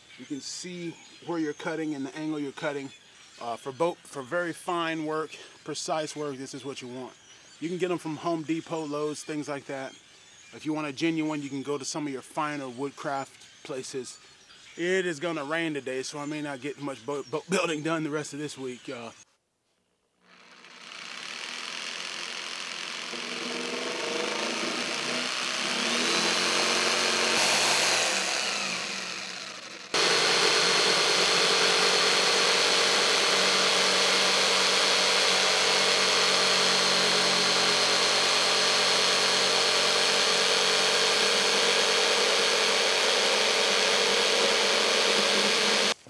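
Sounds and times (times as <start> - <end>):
jigsaw cutting plywood: 20.2 - 46.0.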